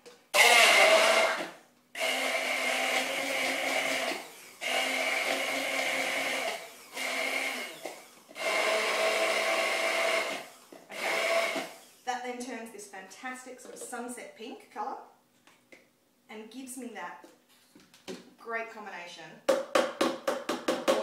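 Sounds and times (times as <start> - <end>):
stick blender whizzing: 0.4 - 12.2.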